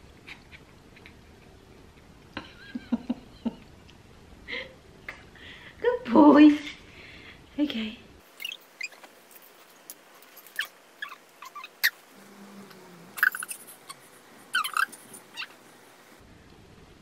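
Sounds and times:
cat squeaky chirps: 8.4 - 9.0, 10.5 - 12.0, 13.2 - 15.6.

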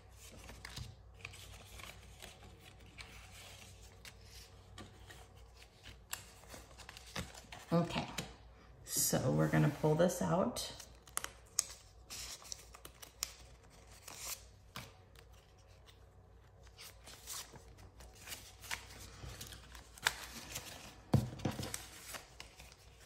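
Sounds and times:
paper rustling and crinkling: 0.0 - 8.2, 10.8 - 23.0.

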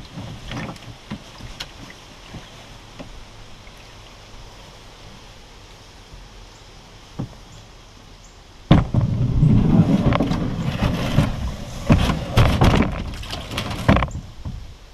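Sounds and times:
kayak hull scraping: 0.0 - 5.2, 8.7 - 14.7
hollow knocks on kayak hull: 7.2 - 7.4, 10.1 - 14.6.

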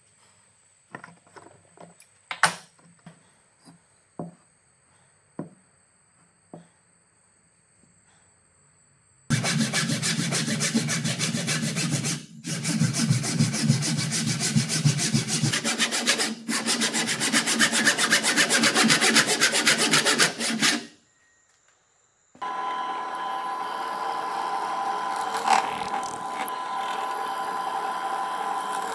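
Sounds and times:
handsaw rasping through wood: 9.3 - 20.9.

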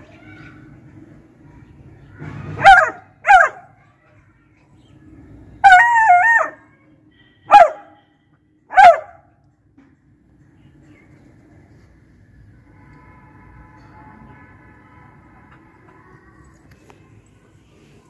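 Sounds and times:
dog barking and baying: 2.6 - 3.7, 7.5 - 7.9, 8.7 - 9.2.

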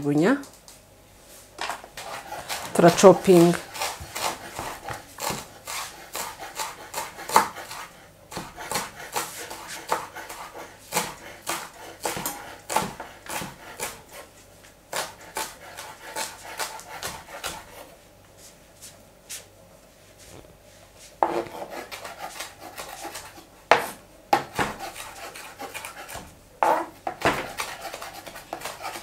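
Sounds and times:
knife chopping on wooden board: 2.0 - 14.2, 14.9 - 17.7, 21.2 - 29.0.

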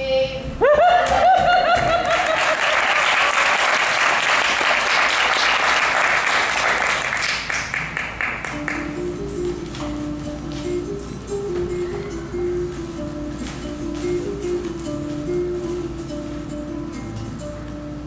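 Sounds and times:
people whooping and cheering: 0.6 - 3.4
audience applauding: 1.0 - 8.9.

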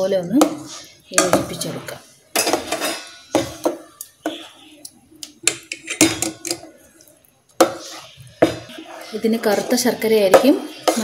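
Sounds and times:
ladle clinking against steel pot: 5.2 - 6.8.

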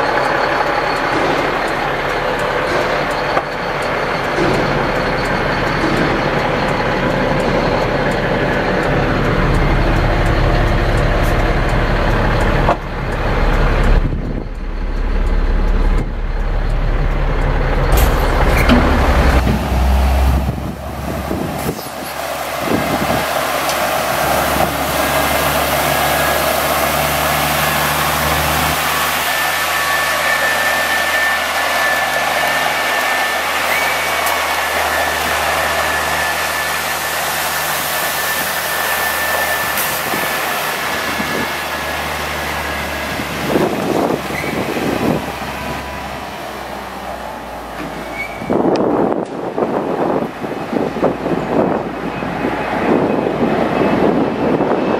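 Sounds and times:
diesel truck engine running: 0.0 - 54.9
water jetting hiss: 21.0 - 45.1.

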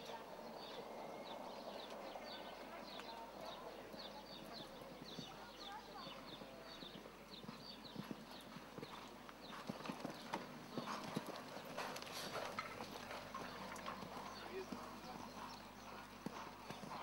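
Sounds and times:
horse hooves thudding on sand: 1.8 - 17.0.

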